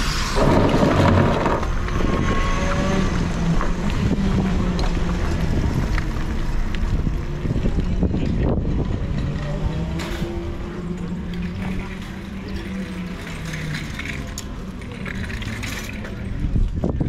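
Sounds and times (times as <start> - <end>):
wind buffeting microphone: 0.0 - 12.8, 16.1 - 17.0
kart engine putter: 0.0 - 16.9.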